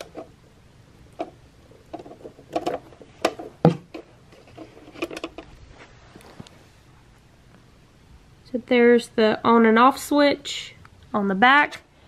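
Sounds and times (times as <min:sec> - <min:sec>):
power cord handling clicks and rustles: 0:01.2 - 0:05.5.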